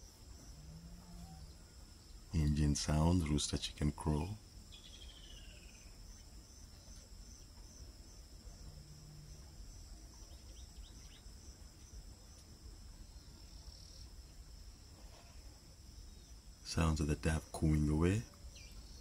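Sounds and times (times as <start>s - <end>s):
crickets trilling: 0.0s - 19.0s
faint chirps: 0.0s - 19.0s.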